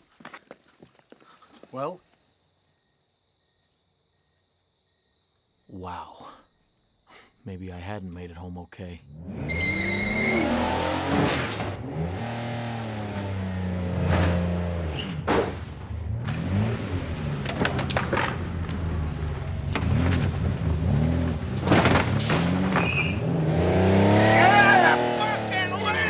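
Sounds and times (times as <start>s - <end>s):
car engine revving: 9.0s - 26.0s.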